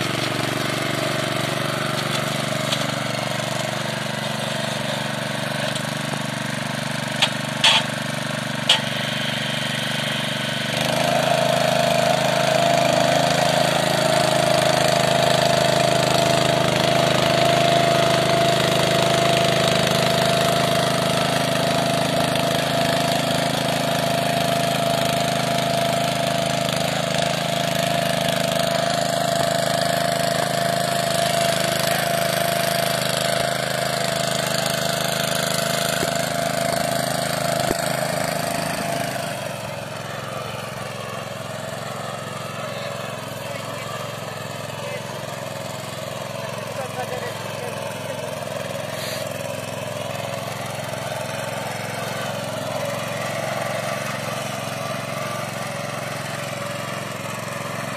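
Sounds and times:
tractor engine running: 0.0 - 57.9.

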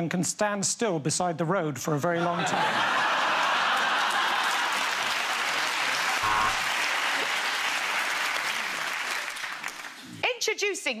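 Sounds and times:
audience applauding: 3.0 - 10.1.

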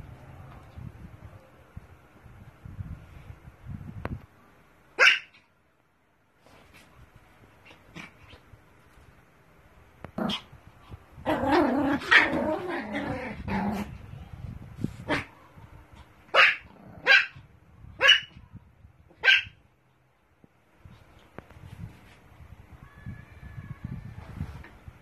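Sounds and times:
small dog yapping: 5.0 - 5.5, 11.3 - 13.9, 16.3 - 17.4, 18.0 - 18.4, 19.1 - 19.6.

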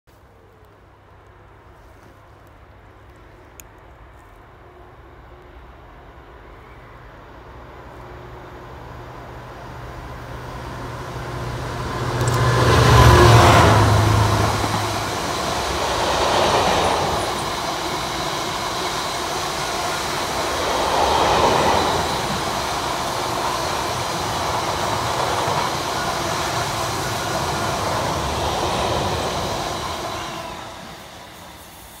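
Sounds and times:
diesel locomotive engine: 0.2 - 32.0.

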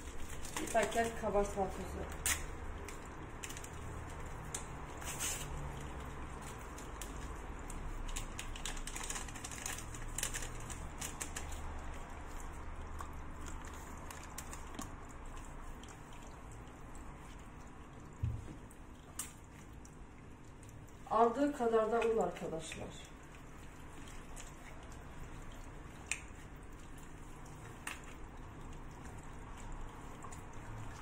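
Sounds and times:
packet rustling and clicking: 0.0 - 1.3, 2.1 - 11.9, 13.0 - 15.0
dough worked by hand: 0.0 - 31.0
low steady hum: 0.0 - 31.0.

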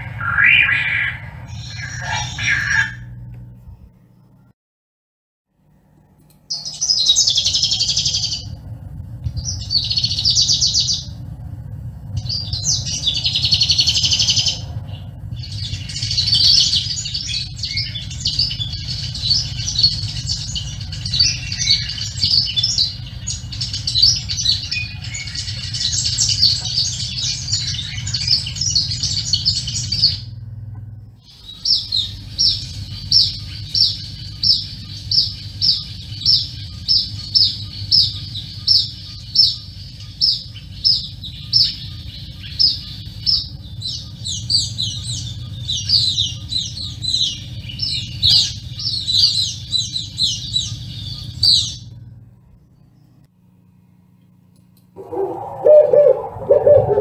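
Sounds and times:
bird high fast chatter: 0.0 - 3.1, 6.6 - 8.6, 12.2 - 30.2, 55.0 - 57.0
birds high chirps: 0.0 - 3.1, 6.5 - 8.6, 9.2 - 53.3, 55.0 - 57.0
low background noise: 51.0 - 57.0.

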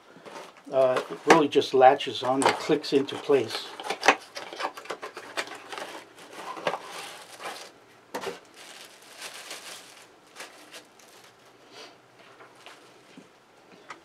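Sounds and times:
cardboard box rustling and scraping: 5.2 - 9.0.

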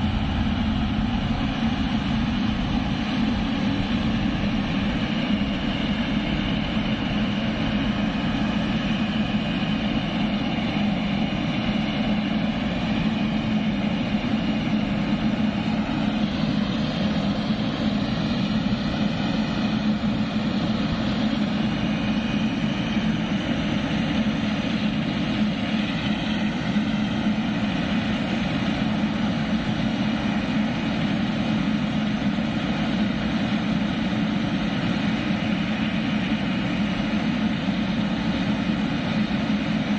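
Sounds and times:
jet engines droning with whine: 0.0 - 39.9.

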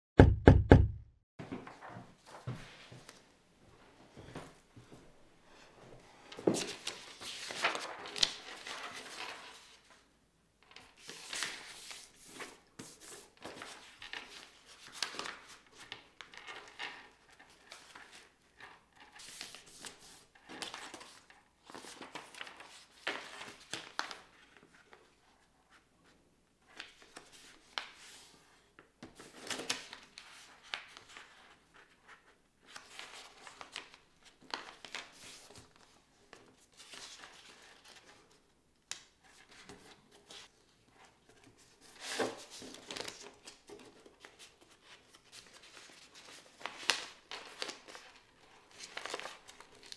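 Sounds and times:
paper rustling and sliding: 6.5 - 9.9.

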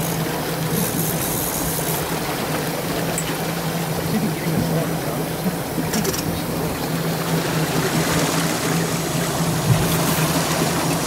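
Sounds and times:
boat engine humming: 0.0 - 11.0
rushing water: 0.0 - 11.0.

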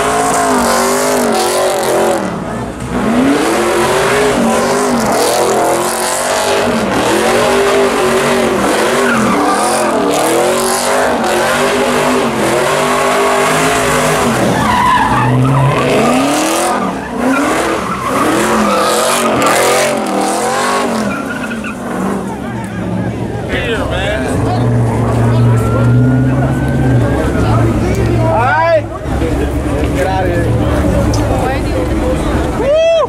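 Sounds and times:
tyres screeching on pavement: 0.0 - 29.9
car engine revving: 0.0 - 32.6.

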